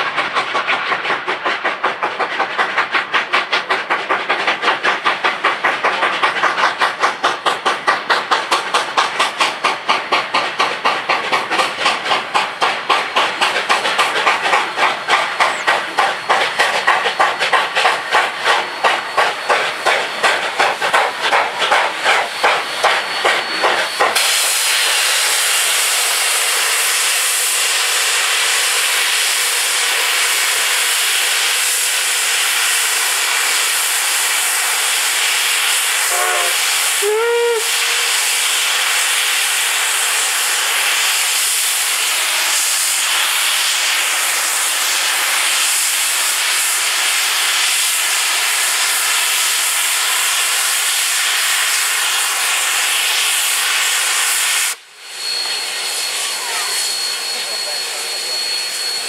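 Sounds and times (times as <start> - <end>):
loud hiss of steam: 0.0 - 59.0
steam locomotive chuffing: 0.0 - 59.0
steam whistle toots: 34.8 - 39.4, 51.4 - 59.0.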